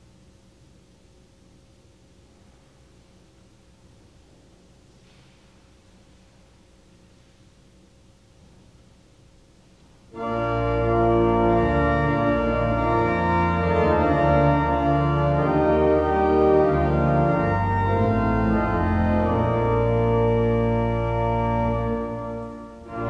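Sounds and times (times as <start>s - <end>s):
church organ chords: 10.1s - 23.0s.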